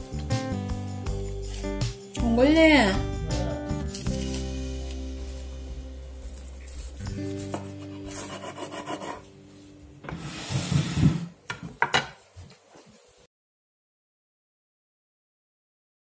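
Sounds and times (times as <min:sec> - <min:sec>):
background music: 0:00.0 - 0:11.1
bread knife sawing crusty bread: 0:06.3 - 0:09.2.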